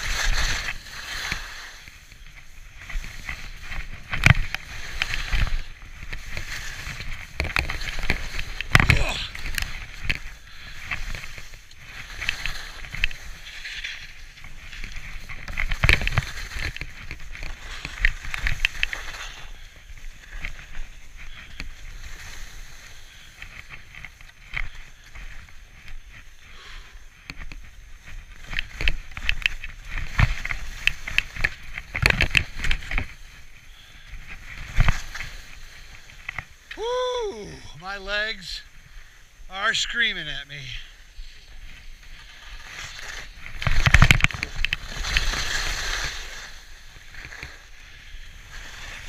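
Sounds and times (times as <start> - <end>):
skis scraping over snow: 0.0 - 49.0.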